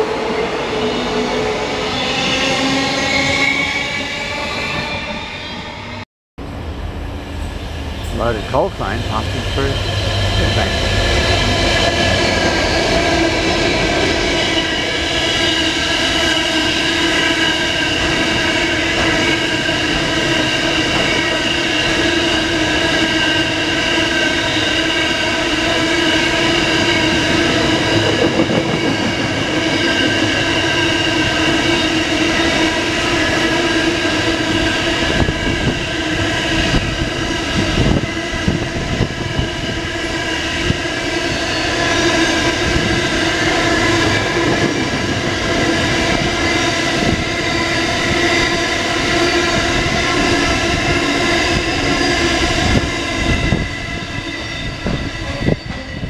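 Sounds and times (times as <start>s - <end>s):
train wagons rolling rumble: 26.5s - 33.4s.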